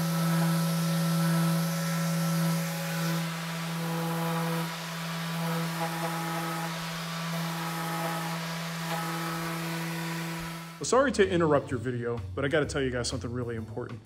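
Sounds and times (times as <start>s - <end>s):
orbit sander sanding paint: 0.0s - 10.8s.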